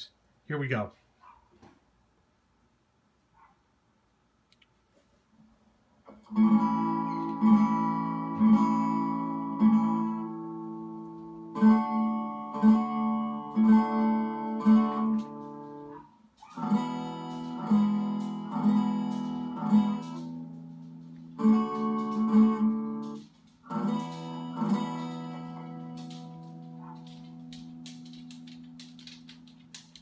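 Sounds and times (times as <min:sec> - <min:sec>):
acoustic guitar strumming through speaker: 0:06.1 - 0:30.0.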